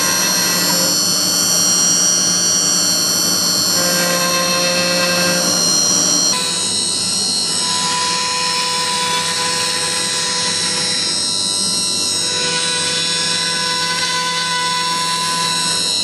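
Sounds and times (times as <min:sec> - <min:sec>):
dust extraction rush: 0:00.0 - 0:06.3
steady whine: 0:00.0 - 0:08.6
router bit cutting wood: 0:00.0 - 0:16.0.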